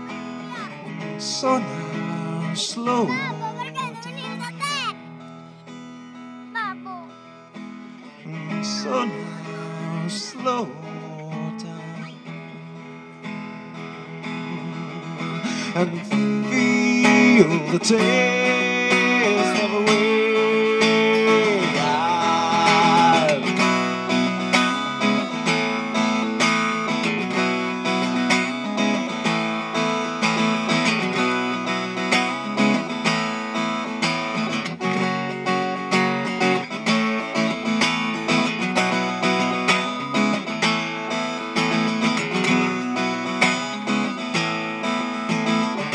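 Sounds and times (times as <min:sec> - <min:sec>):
acoustic guitar strummed and picked: 0:00.0 - 0:45.9.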